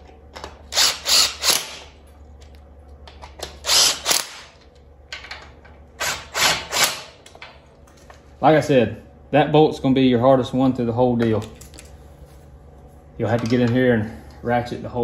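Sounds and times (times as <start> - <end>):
cordless impact driver bursts: 0.7 - 1.8, 3.6 - 4.5.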